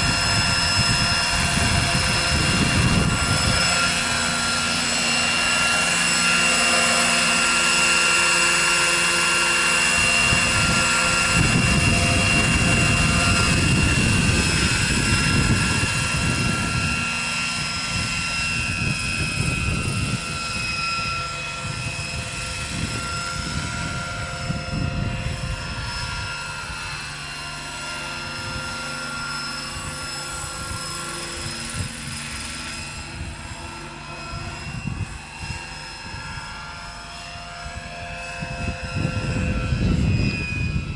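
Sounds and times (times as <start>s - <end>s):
gusty low rumble: 0.0s - 6.6s, 9.8s - 27.0s, 37.6s - 40.9s
helicopter rotor noise: 0.0s - 40.9s
model helicopter motor whine: 0.0s - 40.9s.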